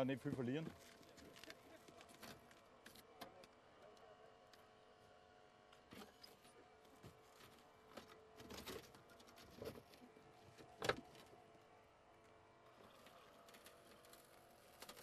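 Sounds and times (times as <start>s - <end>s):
sheet metal cracking and tearing: 12.9s - 15.0s.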